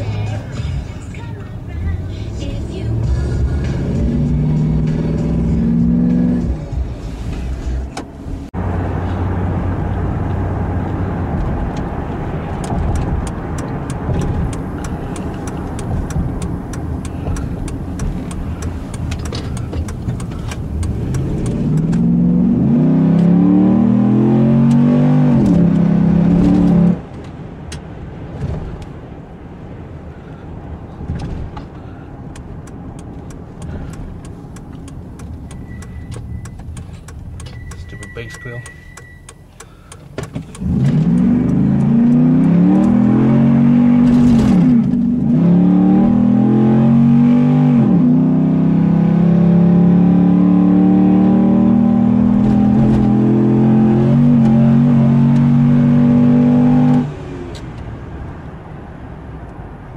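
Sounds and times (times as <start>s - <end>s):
truck engine revving from inside cab: 0.0s - 27.0s, 40.4s - 57.6s.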